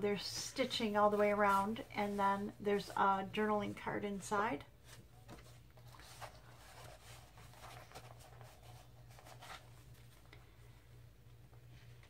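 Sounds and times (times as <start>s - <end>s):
low steady hum: 0.0s - 12.0s
paper pages rustling: 4.8s - 10.3s.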